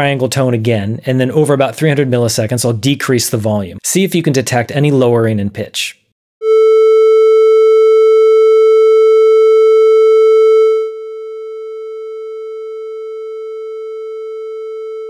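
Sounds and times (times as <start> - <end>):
triangle-wave test tone: 6.4 - 15.0.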